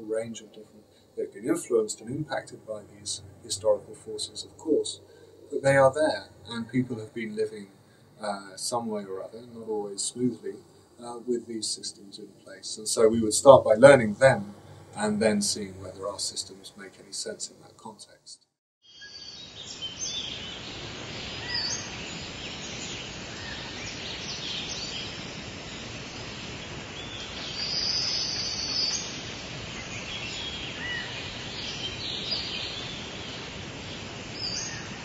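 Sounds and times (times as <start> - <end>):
steady hiss: 0.0 - 18.4, 19.0 - 35.0
birds chirping and whistling: 21.3 - 25.1.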